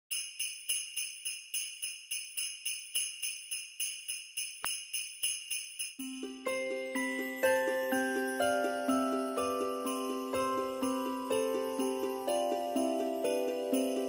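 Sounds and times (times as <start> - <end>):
jingle bells shaken: 0.1 - 14.0
melody with held notes: 6.0 - 14.0.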